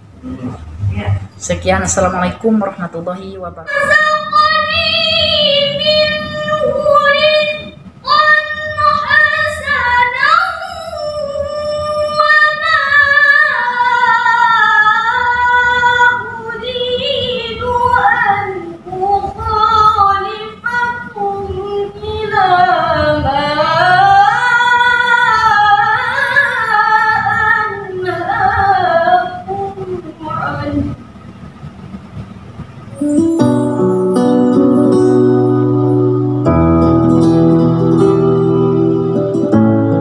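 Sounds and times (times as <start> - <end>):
woman chanting recitation: 0.2 - 31.0.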